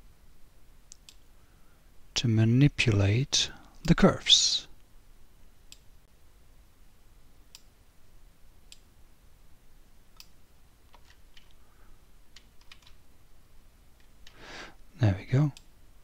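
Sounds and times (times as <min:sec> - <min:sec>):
computer mouse clicking: 0:10.1 - 0:11.6, 0:12.3 - 0:13.0.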